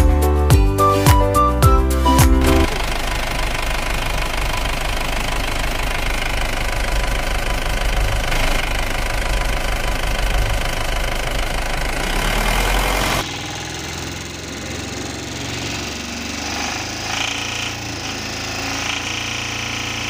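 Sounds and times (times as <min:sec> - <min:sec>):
intro music: 0:00.0 - 0:02.8
engine running with fast knocking: 0:02.4 - 0:20.0.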